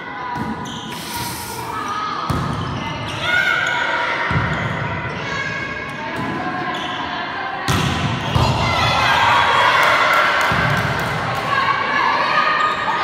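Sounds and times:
shoe squeaks: 0:00.6 - 0:01.6.

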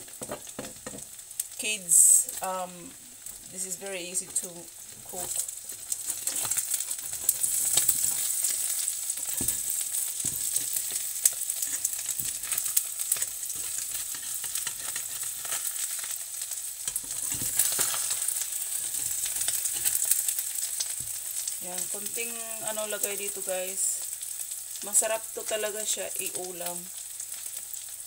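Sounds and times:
omelette sizzling in oil: 0:00.0 - 0:28.0
metal turner scraping pan: 0:04.2 - 0:16.2, 0:16.8 - 0:21.2.

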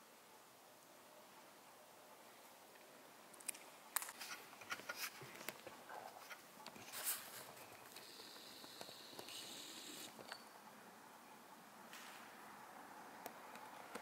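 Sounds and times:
soft brushing: 0:04.2 - 0:07.7
faint high whine: 0:05.4 - 0:14.0.

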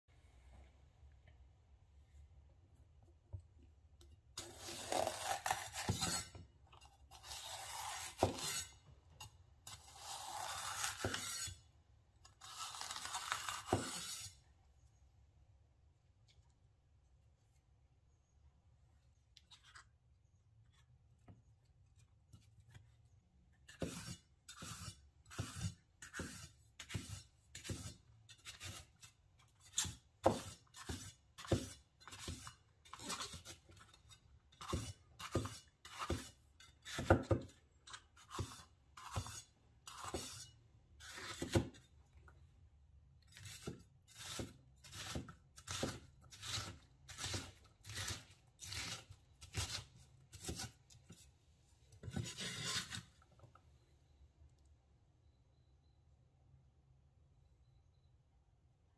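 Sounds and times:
knife chopping on wooden board: 0:30.2 - 0:32.5, 0:34.6 - 0:37.5, 0:41.1 - 0:41.8.

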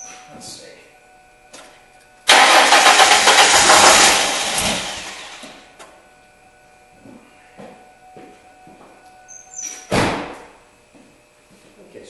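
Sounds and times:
car engine cranking and running rough: 0:02.3 - 0:05.4.

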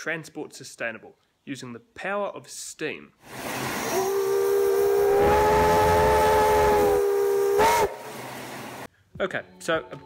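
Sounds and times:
steam hissing: 0:03.3 - 0:08.9
steam locomotive whistle: 0:03.8 - 0:08.6.

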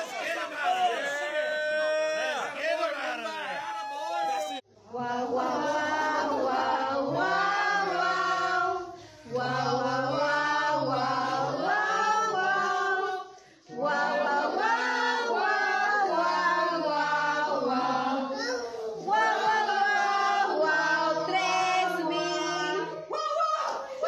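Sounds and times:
group of voices singing: 0:04.8 - 0:23.2.

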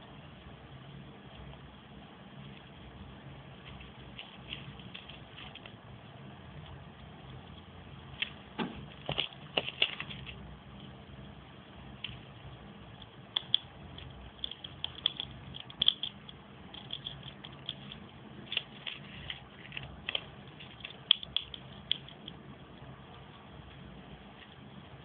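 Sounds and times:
faint low hum: 0:00.0 - 0:25.0
chipmunk cracking seed shells: 0:13.0 - 0:22.4.

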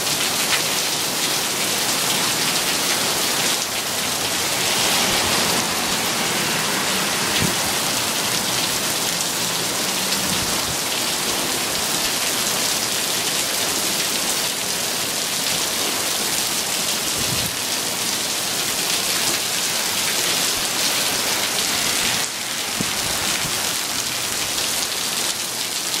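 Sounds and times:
heavy rain on pavement and cars: 0:00.0 - 0:26.0.

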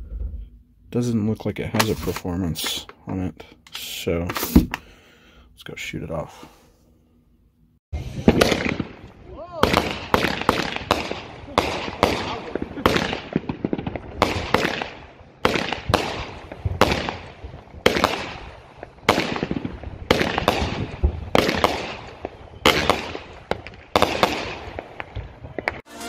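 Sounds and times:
firework aerial bursts: 0:08.0 - 0:26.0
firework launch bangs: 0:08.2 - 0:25.8.

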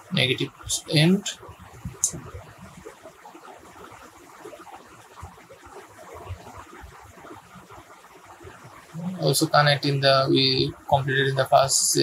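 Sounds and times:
microphone background hiss: 0:00.0 - 0:02.9, 0:08.7 - 0:12.0.

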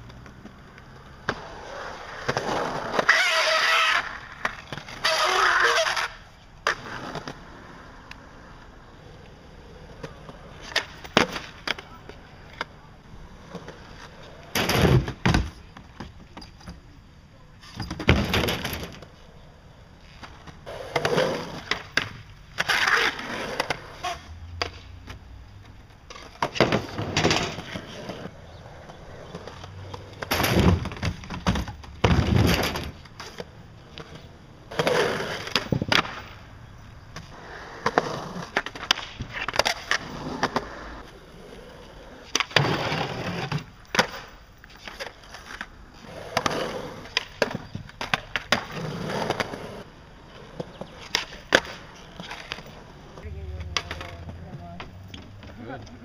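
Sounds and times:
skateboard wheels rolling on concrete: 0:00.0 - 0:56.0
skateboard scraping on concrete ledge: 0:00.1 - 0:11.8, 0:19.9 - 0:56.0
skateboard landing thuds: 0:14.5 - 0:16.2, 0:17.8 - 0:19.0, 0:26.1 - 0:28.2, 0:29.9 - 0:33.2, 0:34.8 - 0:36.4
skateboard pops: 0:34.7 - 0:36.5, 0:37.1 - 0:41.1, 0:42.2 - 0:49.6.

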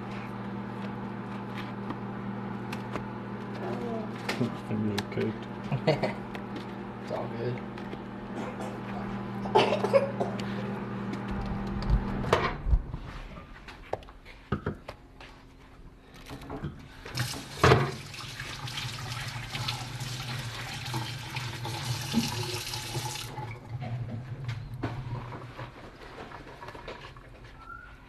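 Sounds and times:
water tap running: 0:17.1 - 0:23.6.

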